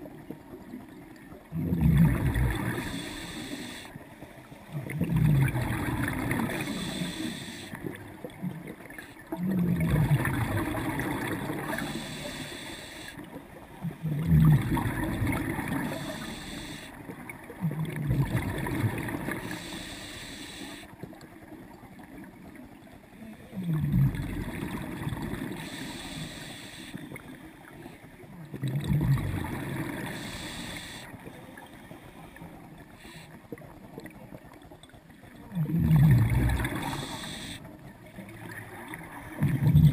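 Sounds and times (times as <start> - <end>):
exhaled bubbles gurgling underwater: 0.0 - 39.9
regulator inhalation hiss: 2.8 - 4.0, 6.6 - 7.8, 11.7 - 13.2, 15.8 - 17.0, 19.4 - 20.9, 25.6 - 27.1, 30.0 - 31.1, 36.8 - 37.7.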